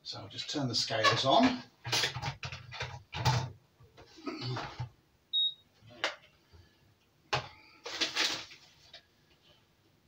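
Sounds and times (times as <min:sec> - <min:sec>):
kitchen scale beep: 0:05.3 - 0:05.6.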